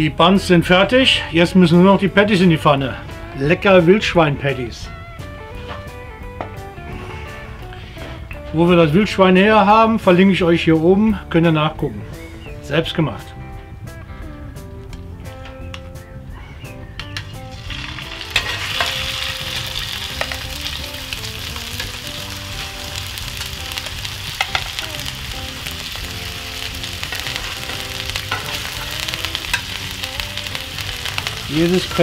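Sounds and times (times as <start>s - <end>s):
burger patties sizzling in pan: 17.3s - 32.0s.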